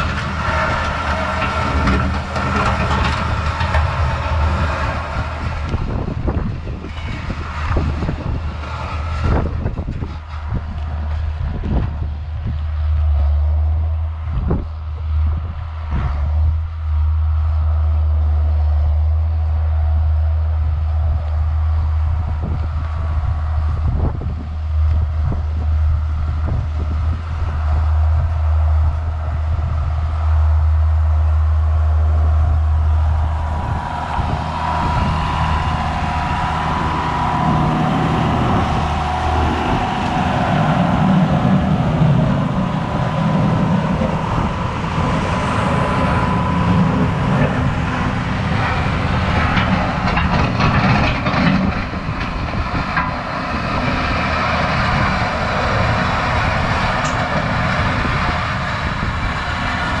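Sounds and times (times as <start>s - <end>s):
tractor diesel engine running: 0.0s - 60.0s
thin steady whine: 16.7s - 60.0s.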